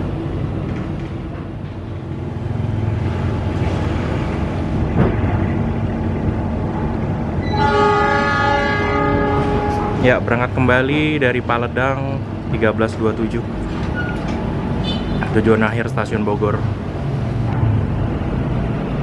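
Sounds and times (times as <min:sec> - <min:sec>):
train rolling over rails: 0:00.0 - 0:19.0
train horn blast: 0:07.4 - 0:10.1.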